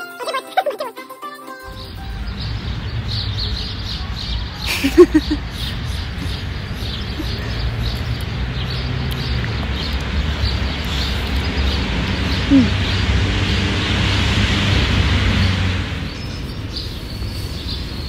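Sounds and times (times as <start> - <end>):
bird chirps: 1.7 - 13.1
outdoor noise hiss: 1.8 - 18.0.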